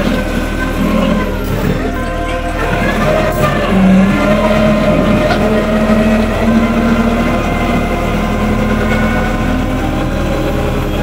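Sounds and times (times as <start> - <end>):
forklift engine running: 0.0 - 11.0.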